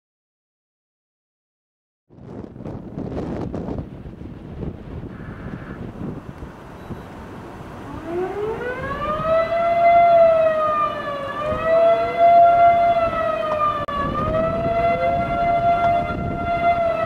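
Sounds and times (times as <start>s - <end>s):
wind noise on microphone: 2.1s - 17.0s
warning siren winding: 7.9s - 17.0s.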